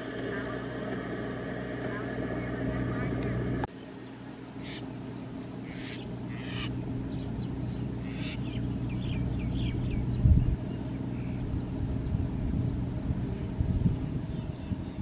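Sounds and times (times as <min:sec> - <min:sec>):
harvester engine running: 0:00.0 - 0:15.0
short high bird calls: 0:04.6 - 0:04.9, 0:05.6 - 0:10.0.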